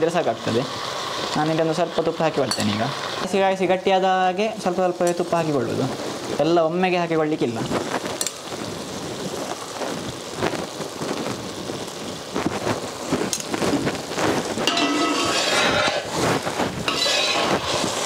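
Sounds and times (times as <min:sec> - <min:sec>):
halwa bubbling and sizzling: 0:00.0 - 0:18.0
spatula stirring: 0:14.2 - 0:18.0
spoon scraping a pan: 0:14.6 - 0:18.0.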